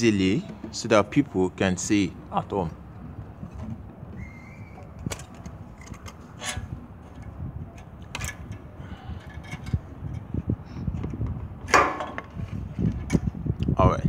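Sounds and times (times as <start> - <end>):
sharp metal clicks and knocks: 4.8 - 13.2.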